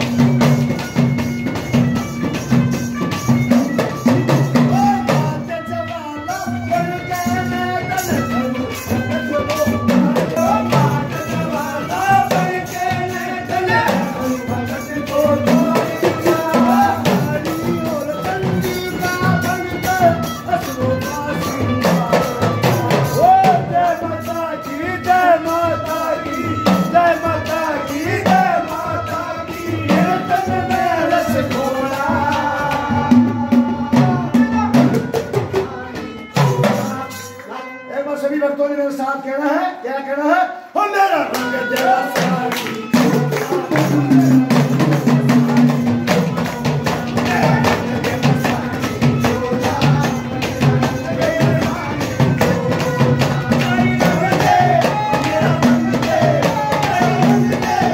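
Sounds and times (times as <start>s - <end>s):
hand drum beat: 0.0s - 24.0s, 25.8s - 37.1s, 41.3s - 57.9s
clay pot percussion: 0.0s - 37.6s, 41.3s - 57.9s
devotional folk music: 0.0s - 39.4s, 40.4s - 57.9s.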